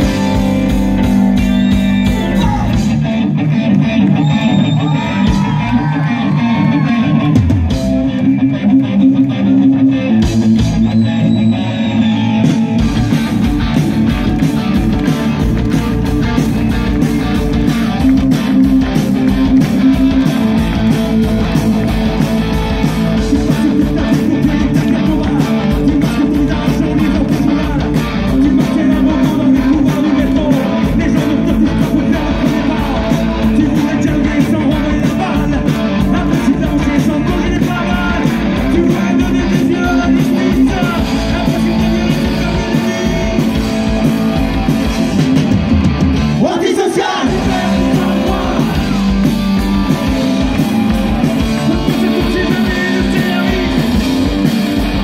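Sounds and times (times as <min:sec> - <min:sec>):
live rock band playing: 0:00.0 - 0:55.0
person singing: 0:23.2 - 0:44.4, 0:46.4 - 0:54.3.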